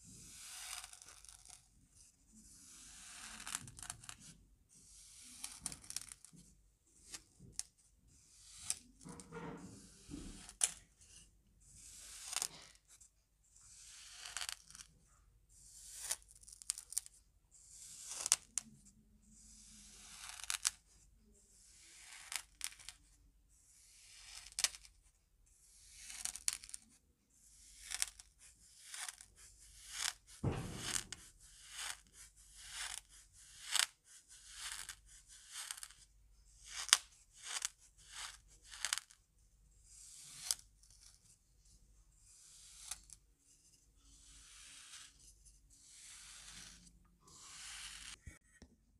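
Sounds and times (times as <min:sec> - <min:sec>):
dull thump: 0:30.4 - 0:31.2
spoon crunching kinetic sand: 0:44.1 - 0:45.2, 0:45.9 - 0:48.3.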